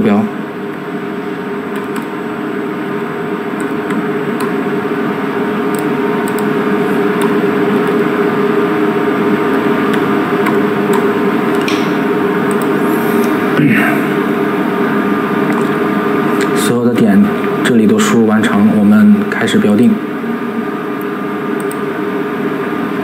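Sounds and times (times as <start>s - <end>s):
machine hum: 0.0s - 23.0s.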